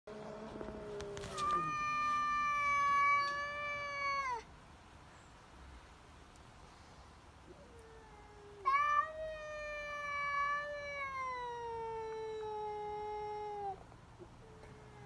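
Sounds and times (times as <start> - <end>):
cats yowling: 0.6 - 4.5, 7.5 - 13.8.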